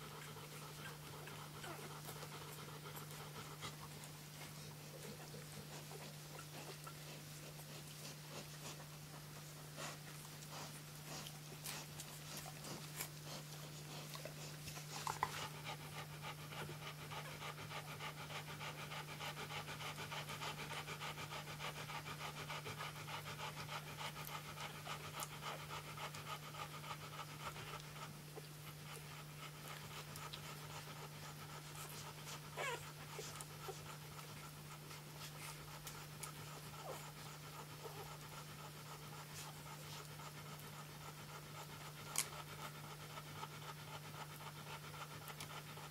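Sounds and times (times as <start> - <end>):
dog panting: 0.0 - 45.9
steady low hum: 0.0 - 45.9.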